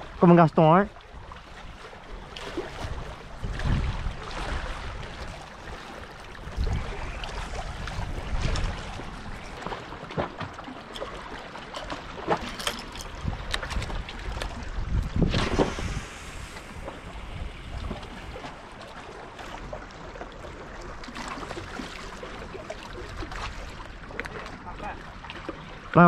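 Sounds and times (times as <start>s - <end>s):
waves lapping on rocks: 0.0s - 26.0s
wind buffeting microphone: 1.1s - 10.1s, 12.5s - 19.8s.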